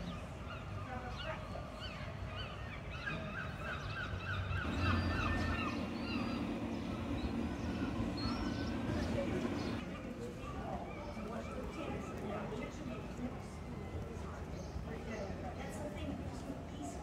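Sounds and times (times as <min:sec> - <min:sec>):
birds calling: 0:00.1 - 0:10.0
low steady hum: 0:04.6 - 0:09.8.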